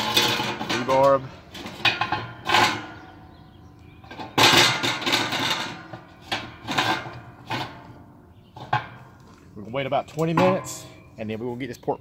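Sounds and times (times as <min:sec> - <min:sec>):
metal rods scraping and knocking: 0:00.0 - 0:03.2, 0:04.0 - 0:09.2, 0:09.8 - 0:11.9.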